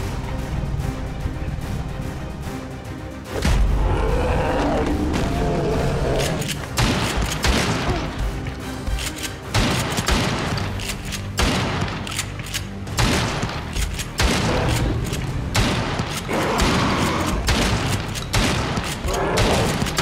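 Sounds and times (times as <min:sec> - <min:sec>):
dramatic film score: 0:00.0 - 0:20.0
shotgun blasts: 0:06.7 - 0:08.2, 0:09.5 - 0:12.1, 0:12.9 - 0:20.0.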